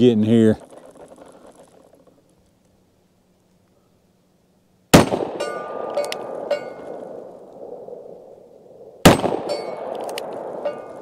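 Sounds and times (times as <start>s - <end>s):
revolver gunshot: 4.9s - 8.0s, 9.0s - 10.9s
steel target ringing: 5.2s - 7.3s, 9.1s - 11.0s.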